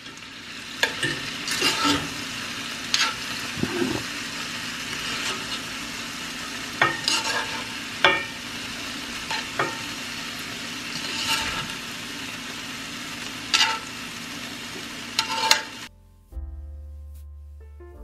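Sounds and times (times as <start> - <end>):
meat sizzling in a skillet: 0.0 - 15.9
metal tongs scraping pan: 0.8 - 2.2, 2.9 - 4.2, 4.9 - 5.7, 6.8 - 8.4, 9.2 - 9.9, 10.9 - 11.8, 13.5 - 13.9, 15.2 - 15.9
soft piano music: 15.9 - 18.0.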